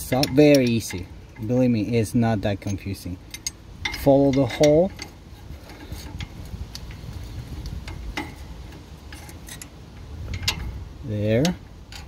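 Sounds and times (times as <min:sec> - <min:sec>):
metallic clicks and taps: 0:00.0 - 0:01.5
low steady rumble: 0:00.0 - 0:12.0.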